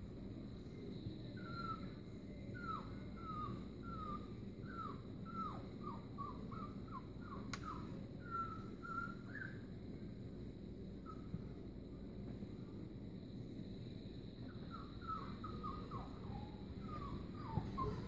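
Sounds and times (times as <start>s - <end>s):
puppy whimpering: 1.4s - 2.0s, 2.6s - 9.6s, 14.6s - 18.0s.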